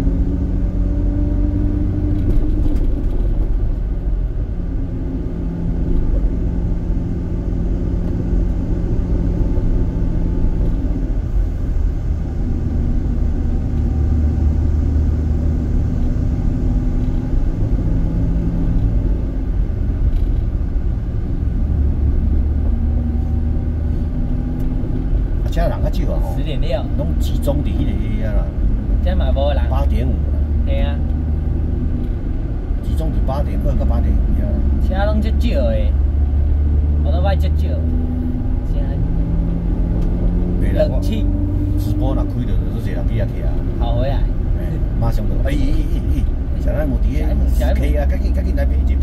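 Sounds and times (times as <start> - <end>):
road rumble: 0.0 - 49.0
wind: 0.0 - 49.0.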